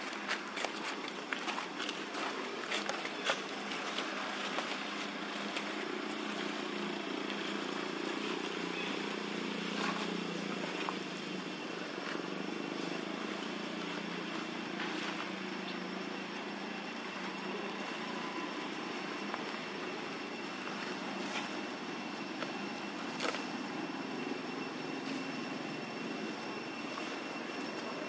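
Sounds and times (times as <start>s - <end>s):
dry leaves crackling and rustling: 0.0s - 28.0s
steady low hum: 0.0s - 28.0s.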